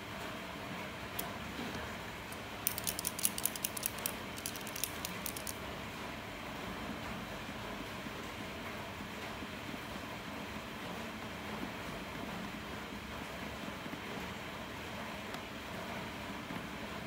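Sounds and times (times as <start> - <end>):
paint marker ball rattling: 2.3 - 5.6.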